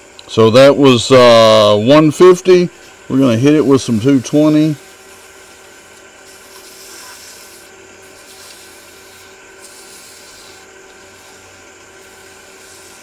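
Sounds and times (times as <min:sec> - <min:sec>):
lathe motor hum: 0:02.7 - 0:13.0
sandpaper hissing on spinning wood: 0:02.8 - 0:13.0.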